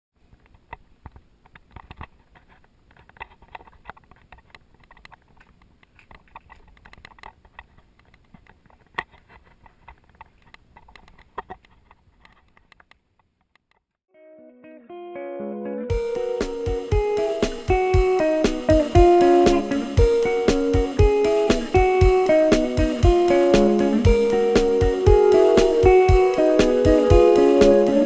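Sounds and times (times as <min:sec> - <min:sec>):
soft guitar notes: 0:14.1 - 0:28.0.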